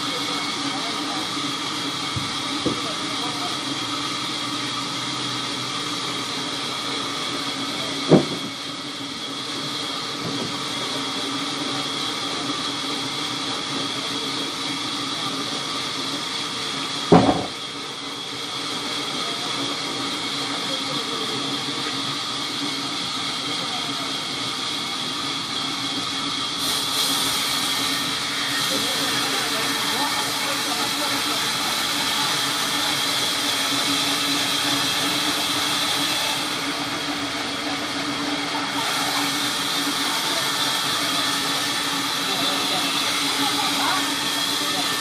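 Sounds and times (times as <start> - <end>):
band saw whining: 0.0 - 45.0
sharp knocks: 8.1 - 8.5, 17.1 - 17.6.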